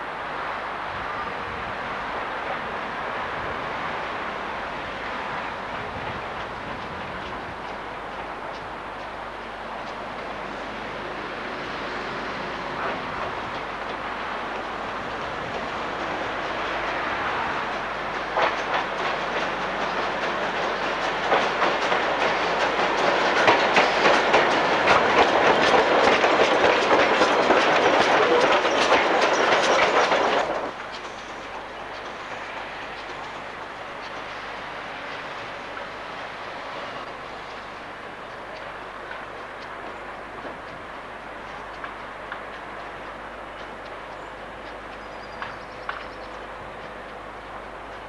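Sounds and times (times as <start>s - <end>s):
steam locomotive running past: 0.0s - 48.0s
wheels clicking over rail joints: 3.4s - 48.0s.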